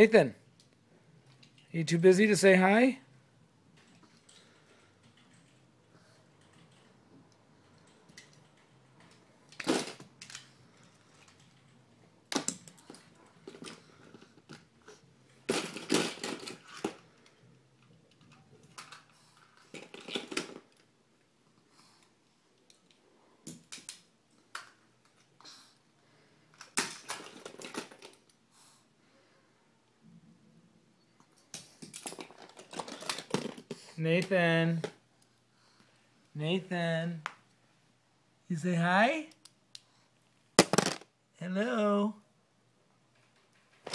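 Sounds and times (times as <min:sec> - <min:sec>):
toy cars clattering: 0:03.8 - 0:05.7, 0:07.6 - 0:20.9, 0:22.6 - 0:25.3, 0:26.5 - 0:28.4, 0:31.4 - 0:35.0, 0:40.6 - 0:41.1, 0:43.2 - 0:43.9.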